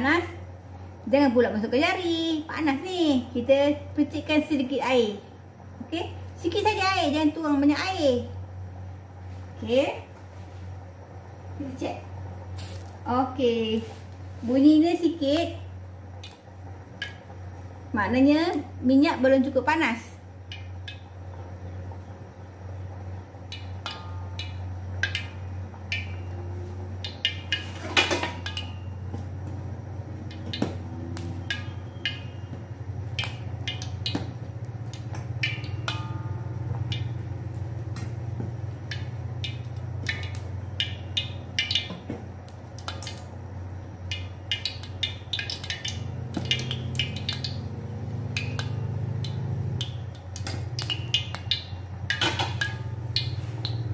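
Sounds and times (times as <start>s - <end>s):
steady low hum: 0.0s - 53.9s
oil popping and crackling: 12.5s - 13.1s, 15.2s - 18.8s, 20.4s - 53.9s.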